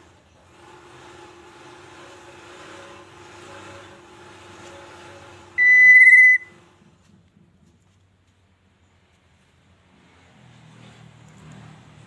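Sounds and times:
high whistle: 5.6 - 6.5.

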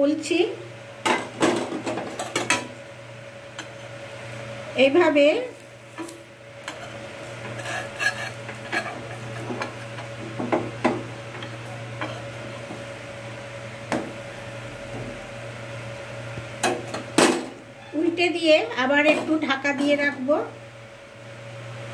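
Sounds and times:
steady low hum: 0.0 - 21.9
metal spatula scraping griddle: 5.9 - 10.2, 11.4 - 12.8.

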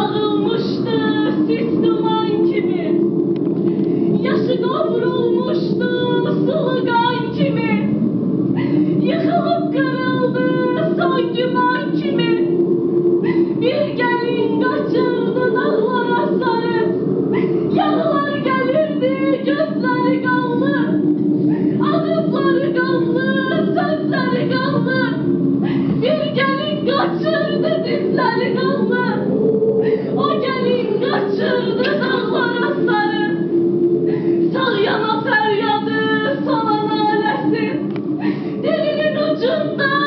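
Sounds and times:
woman singing slowly: 0.0 - 3.0, 9.0 - 12.6, 13.2 - 25.3, 26.0 - 33.6, 34.4 - 38.0, 38.6 - 40.0.

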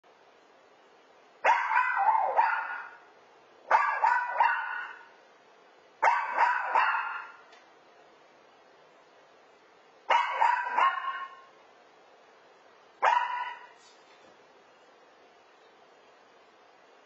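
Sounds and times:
small dog barking: 1.4 - 3.1, 3.7 - 5.2, 6.0 - 7.5, 10.1 - 11.6, 13.0 - 13.8.

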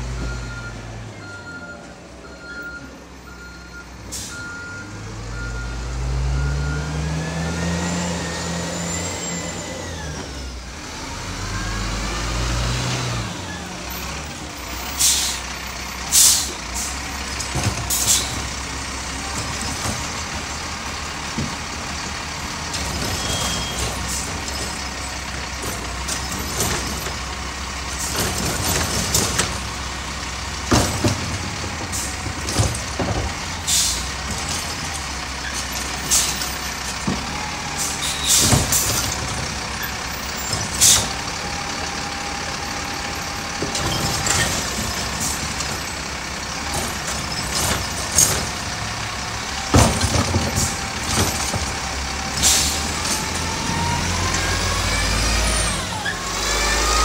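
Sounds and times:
reversing beeps: 0.2 - 7.1
diesel engine revving with whine: 4.7 - 15.0, 35.5 - 57.0
bins banging: 16.4 - 55.8.

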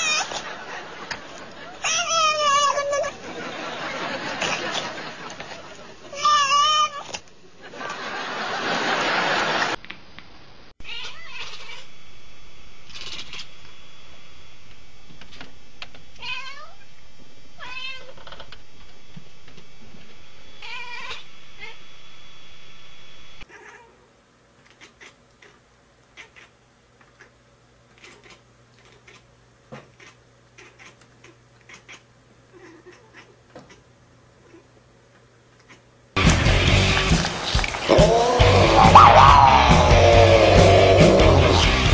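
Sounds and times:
cat meowing: 1.9 - 3.2, 10.8 - 11.9, 16.2 - 16.8, 17.6 - 18.1, 20.6 - 21.8, 23.5 - 24.0, 37.9 - 41.6.

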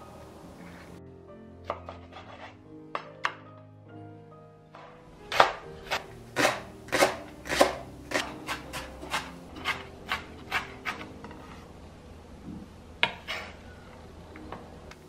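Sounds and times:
knife chopping on cutting board: 5.3 - 11.1.

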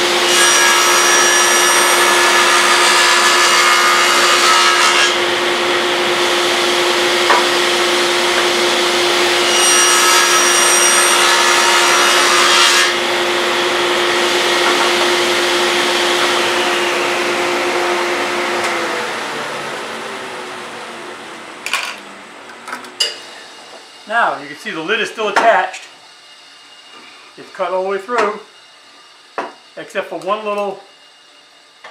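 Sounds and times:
table saw whining: 0.0 - 31.9
saw blade cutting wood: 0.1 - 5.3, 7.2 - 18.8
dust collector rushing: 13.0 - 22.6.

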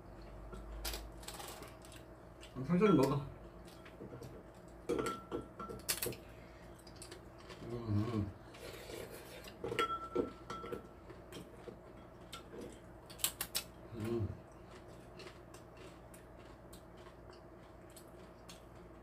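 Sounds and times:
chewing: 6.8 - 9.7, 10.3 - 19.0
hum-like voice: 7.6 - 8.4, 13.9 - 14.4.

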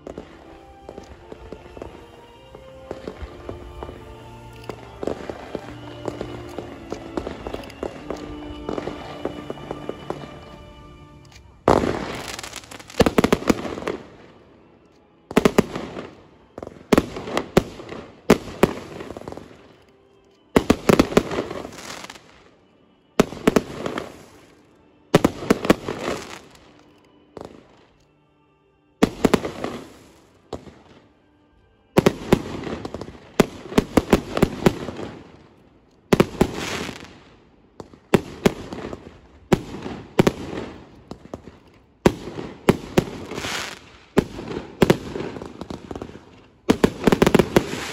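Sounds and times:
fireworks bangs and crackle: 0.0 - 10.7, 11.6 - 14.4, 20.6 - 22.3, 23.2 - 24.4, 32.0 - 35.5, 36.1 - 47.9.

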